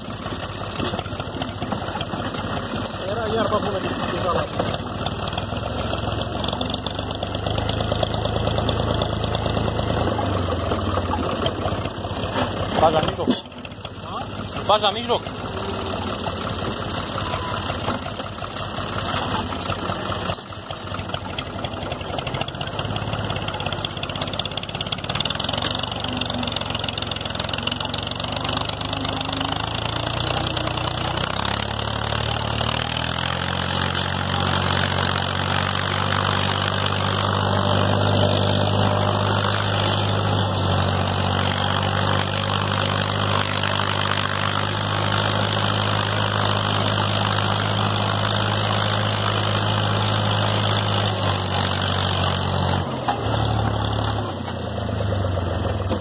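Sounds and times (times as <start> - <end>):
tractor diesel engine under load: 0.0 - 56.0.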